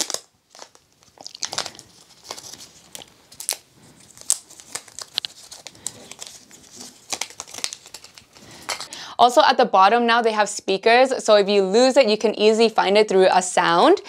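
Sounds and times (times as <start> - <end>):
plastic wrap crinkling: 0.0 - 8.9.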